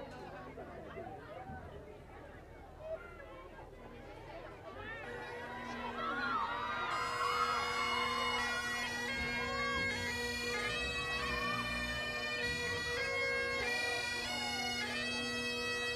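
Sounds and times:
bagpipes playing: 0:05.0 - 0:15.9.

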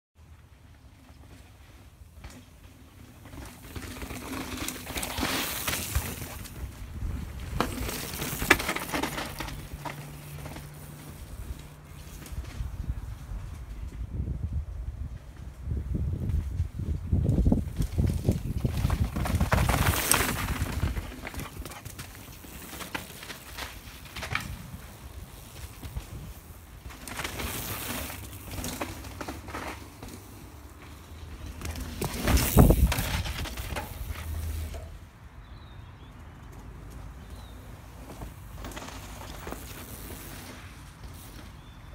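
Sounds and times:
wind rumbling on microphone: 0:05.9 - 0:08.6, 0:11.2 - 0:21.8, 0:31.2 - 0:34.8.

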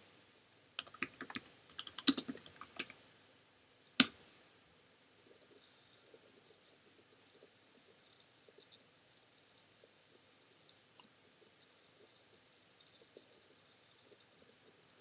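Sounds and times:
typing on computer keyboard: 0:00.8 - 0:03.0.

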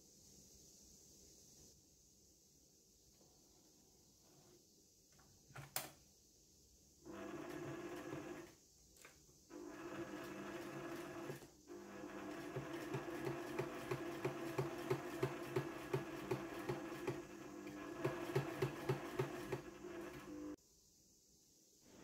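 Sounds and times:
sewing machine stitching denim: 0:07.1 - 0:08.6, 0:09.5 - 0:20.6.

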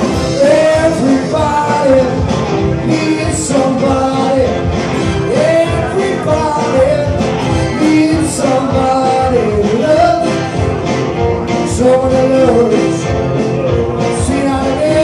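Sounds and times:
bass: 0:00.0 - 0:15.0
drums: 0:00.0 - 0:15.0
electric guitar: 0:00.0 - 0:15.0
keyboards: 0:00.0 - 0:15.0
man singing lead: 0:00.0 - 0:15.0.

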